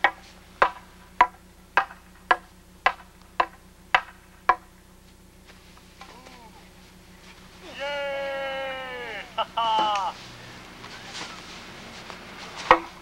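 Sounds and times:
wooden staffs clacking: 0.0s - 4.8s, 9.4s - 13.0s.

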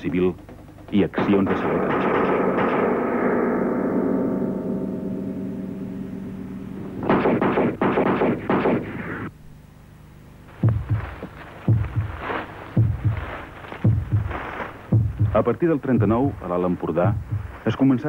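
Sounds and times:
held musical chord: 1.2s - 7.1s
burst of gunfire: 7.0s - 9.2s
low thumps in pairs: 10.6s - 17.7s.

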